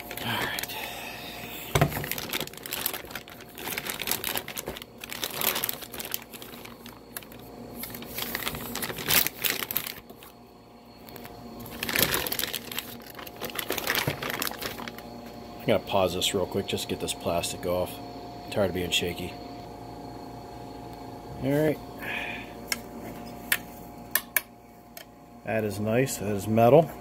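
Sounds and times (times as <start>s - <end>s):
plastic bag crinkling: 0.0s - 10.4s, 11.0s - 15.2s.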